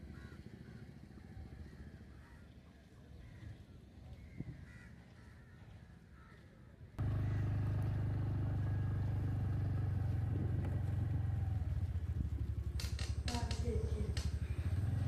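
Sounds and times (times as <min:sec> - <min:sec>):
vehicle engine running: 0:07.0 - 0:15.0.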